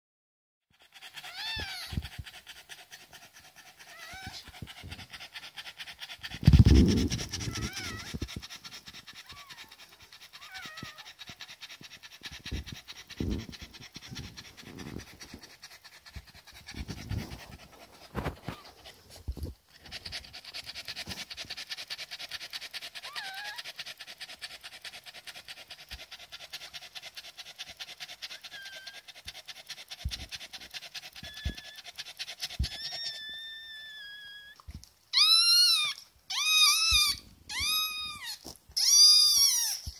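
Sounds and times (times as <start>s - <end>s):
dog panting: 0.7s - 39.9s
puppy squeaking: 1.1s - 2.1s, 3.8s - 4.5s, 6.5s - 8.3s, 9.2s - 9.8s, 10.4s - 11.1s, 23.0s - 23.6s, 28.4s - 29.0s, 31.2s - 31.9s, 32.5s - 39.9s.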